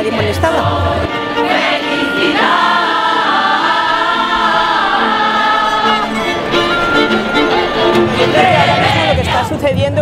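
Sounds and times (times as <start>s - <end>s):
women singing in chorus: 0.0s - 6.4s
violin: 0.0s - 9.7s.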